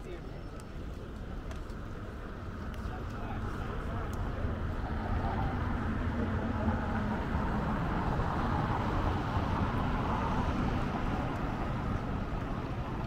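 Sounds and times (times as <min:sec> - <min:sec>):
general hubbub: 0:00.0 - 0:06.7
traffic rumble: 0:00.0 - 0:13.0.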